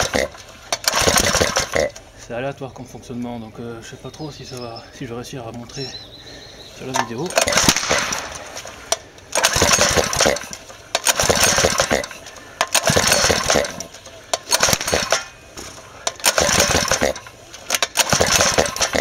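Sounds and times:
engine cranking on pull-start: 0:00.0 - 0:02.1, 0:06.8 - 0:19.0.

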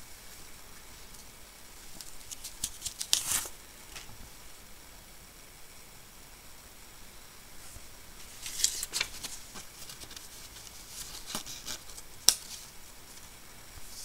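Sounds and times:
phone case rustling and scraping: 0:08.2 - 0:13.3.

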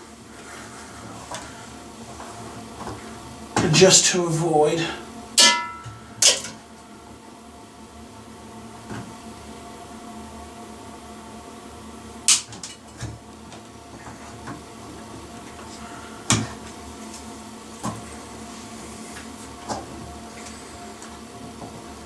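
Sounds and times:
background hum: 0:00.0 - 0:22.0
hand tools snipping wires: 0:12.3 - 0:12.8.

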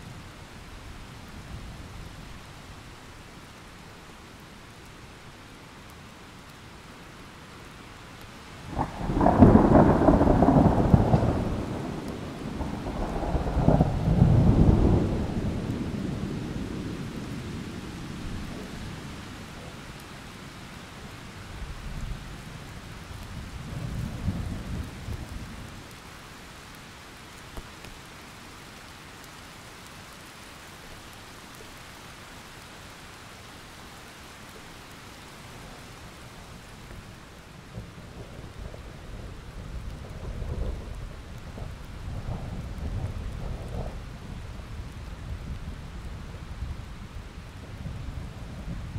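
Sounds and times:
steady rain: 0:00.0 - 0:48.9
thunder rumbling: 0:08.7 - 0:19.1, 0:37.7 - 0:47.2.

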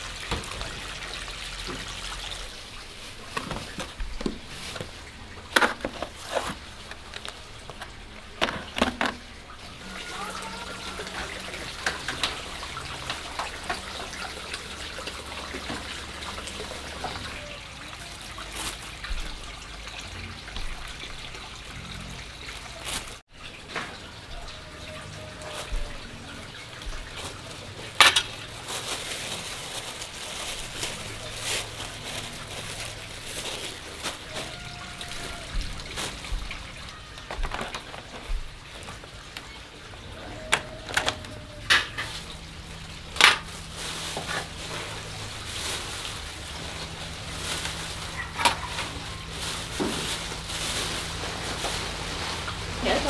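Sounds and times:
faint water sounds: 0:00.0 - 0:53.0
dishes and utensils clinking: 0:26.9 - 0:29.8.

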